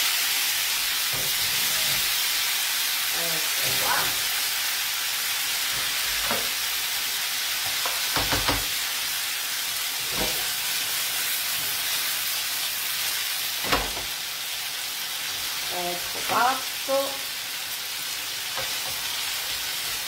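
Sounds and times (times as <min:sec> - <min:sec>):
food sizzling in a frying pan: 0:00.0 - 0:20.0
pan and spoon knocks: 0:07.8 - 0:08.7.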